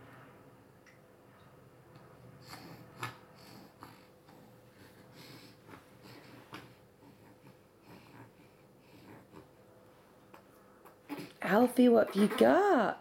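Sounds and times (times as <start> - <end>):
baby sniffing and breathing: 2.4 - 9.5.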